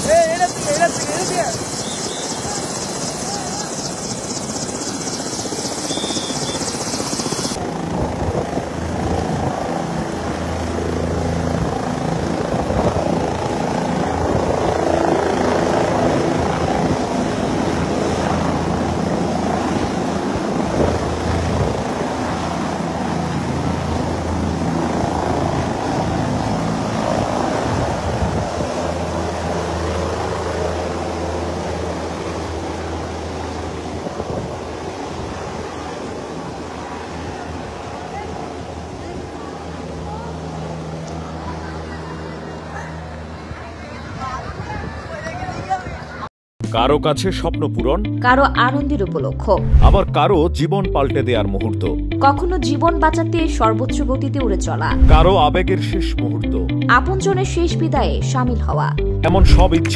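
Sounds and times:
helicopter engine and rotor: 0:00.0 - 0:46.2.

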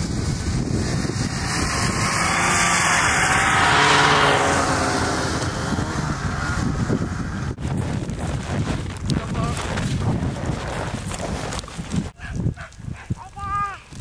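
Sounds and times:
vehicle engine passing by: 0:00.0 - 0:07.6.

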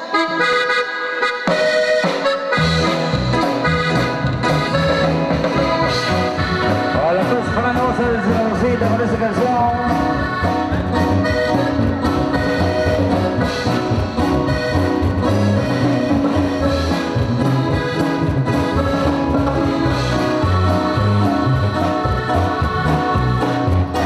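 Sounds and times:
accordion-like melody: 0:00.0 - 0:24.0
live latin dance band: 0:00.0 - 0:24.0
walking bass line: 0:01.5 - 0:24.0.

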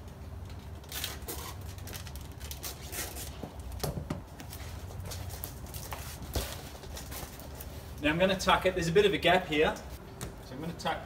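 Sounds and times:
foam sheet and plastic crackling: 0:00.6 - 0:08.4.

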